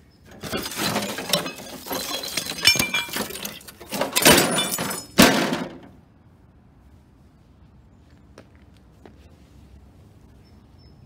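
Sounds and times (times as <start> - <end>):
glass shards clattering on concrete: 0.3 - 5.5
thick glass breaking: 0.3 - 5.8.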